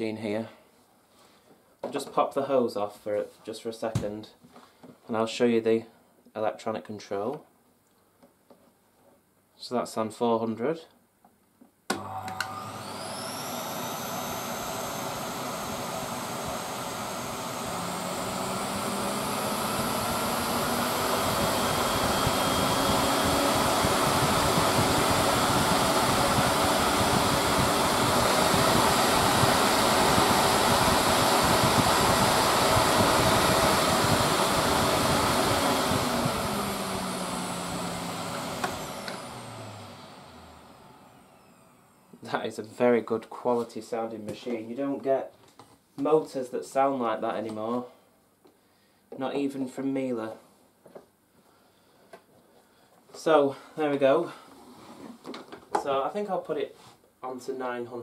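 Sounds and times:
vacuum cleaner switch click: 0:11.9 - 0:12.6
vacuum cleaner motor running: 0:11.9 - 0:42.2.

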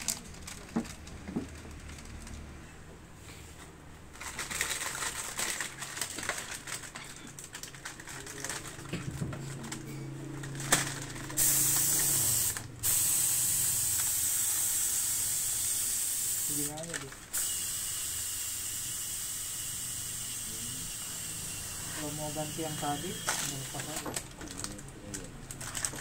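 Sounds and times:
compressed air hissing from spray gun: 0:11.4 - 0:16.7, 0:17.3 - 0:20.3.

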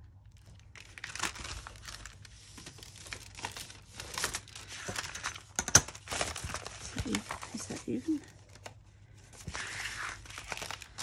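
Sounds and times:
paper envelope rustling and crinkling: 0:00.4 - 0:11.0.

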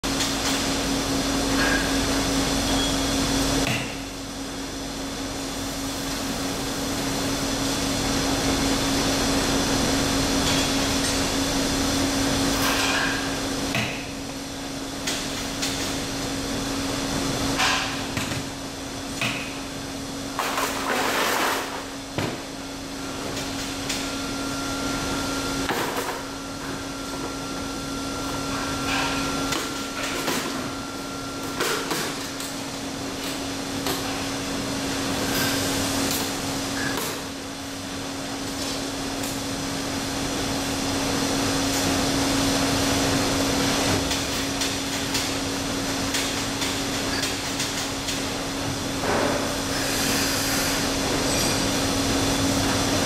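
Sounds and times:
testing machine humming: 0:21.8 - 0:49.0.

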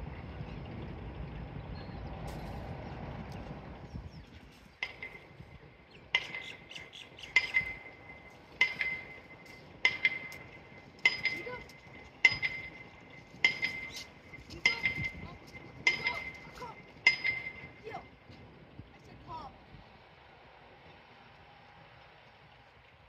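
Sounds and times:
metal clinking on metal: 0:04.8 - 0:18.2.

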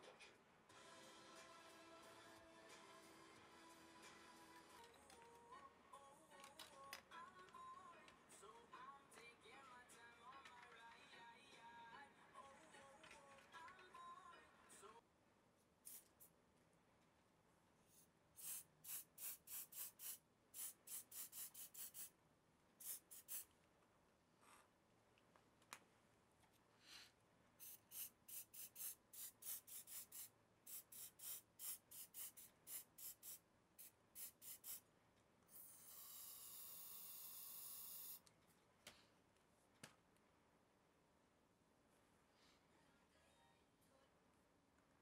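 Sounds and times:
aerosol can spraying: 0:15.8 - 0:16.3, 0:18.4 - 0:22.1, 0:22.8 - 0:23.5, 0:27.6 - 0:34.8, 0:35.6 - 0:38.2.

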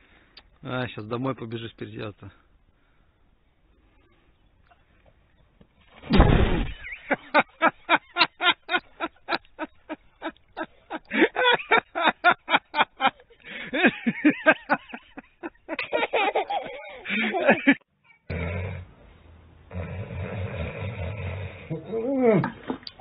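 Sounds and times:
big splash into water: 0:06.0 - 0:06.9
hearty laughter: 0:06.8 - 0:17.8.

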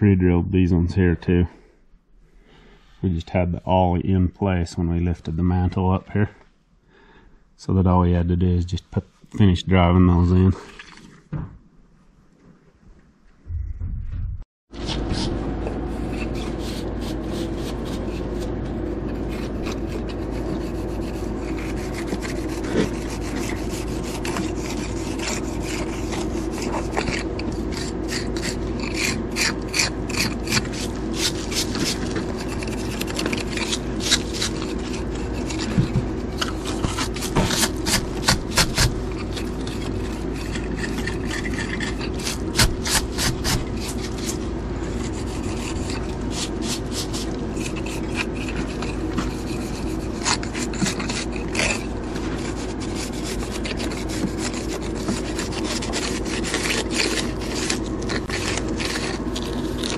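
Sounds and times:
steady low hum: 0:00.0 - 0:59.9
metal tool scraping mortar joints: 0:19.0 - 0:59.9.

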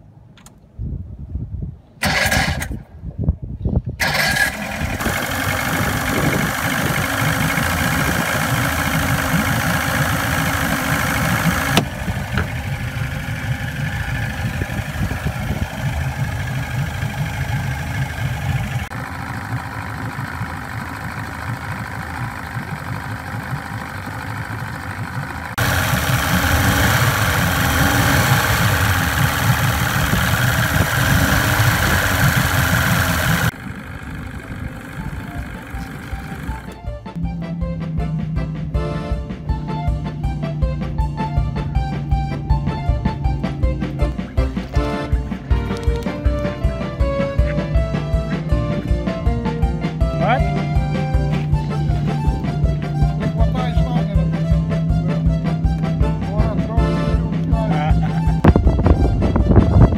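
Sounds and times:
electric starter cranking: 0:02.0 - 0:02.8, 0:04.0 - 0:36.9
outboard motor idling: 0:04.0 - 0:59.9.

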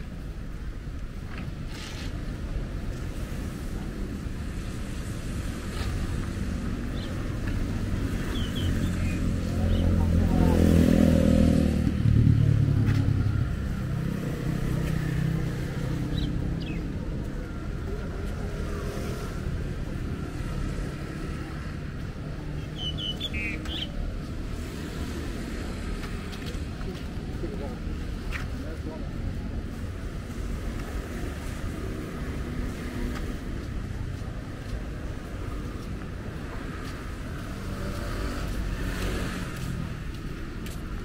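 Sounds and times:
road traffic passing: 0:00.0 - 0:41.0
vehicle engine: 0:07.4 - 0:23.0.

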